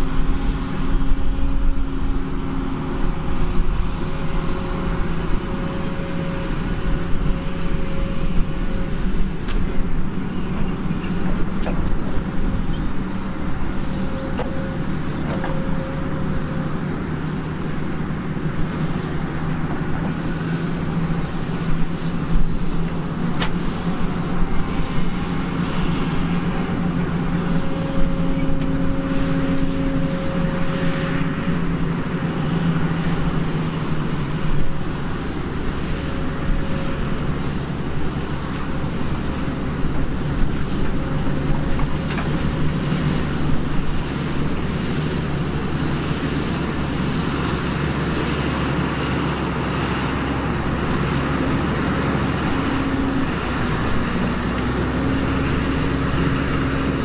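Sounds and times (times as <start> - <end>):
heavy machinery diesel engine drone: 0.0 - 57.0.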